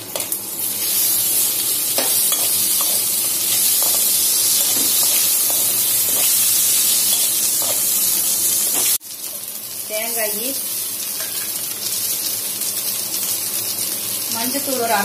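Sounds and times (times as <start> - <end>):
food sizzling in hot oil: 0.0 - 15.0.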